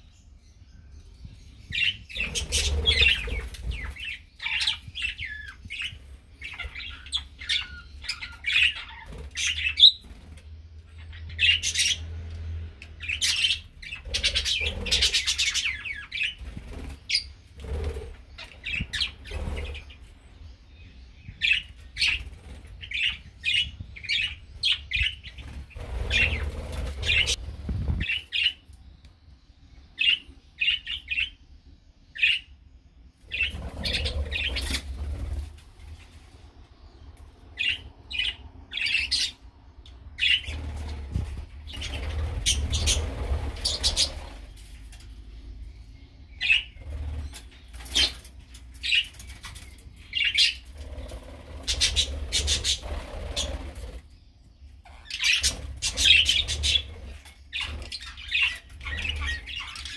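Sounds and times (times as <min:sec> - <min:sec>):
budgerigars chirping: 0:01.6 - 0:10.2, 0:11.0 - 0:12.1, 0:13.0 - 0:20.0, 0:21.2 - 0:28.6, 0:33.3 - 0:35.3, 0:37.6 - 0:39.4, 0:40.1 - 0:40.8, 0:41.7 - 0:44.6, 0:45.8 - 0:54.3, 0:54.9 - 0:59.9
wings flapping: 0:25.3 - 0:28.2, 0:40.4 - 0:44.6.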